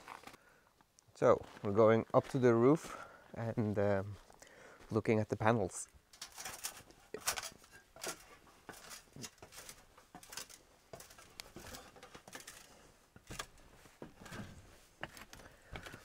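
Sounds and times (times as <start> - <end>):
footsteps and hands on ladder rungs: 1.2 - 16.0
clothing rustling: 6.1 - 16.0.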